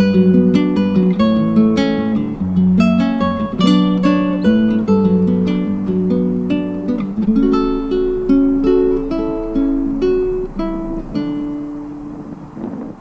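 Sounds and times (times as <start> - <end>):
acoustic guitar picking: 0.0 - 13.0.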